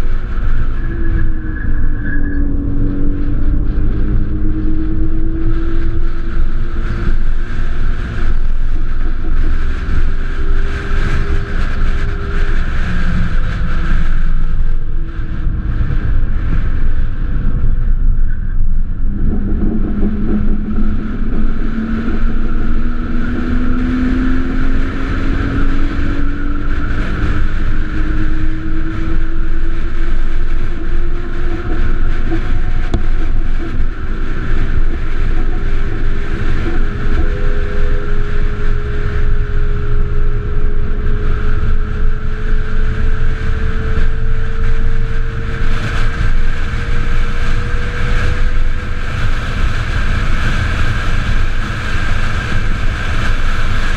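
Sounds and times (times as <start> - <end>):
heavy wind: 0.0 - 53.9
road rumble: 0.0 - 53.9.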